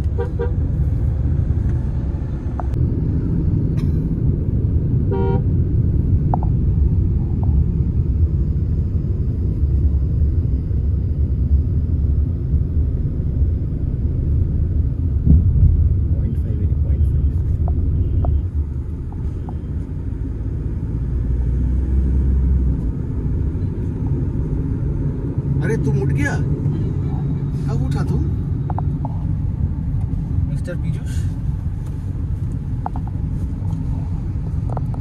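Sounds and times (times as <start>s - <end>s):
road and engine rumble in car: 0.0s - 35.0s
vehicle horn toot: 0.1s - 0.6s, 5.1s - 5.5s.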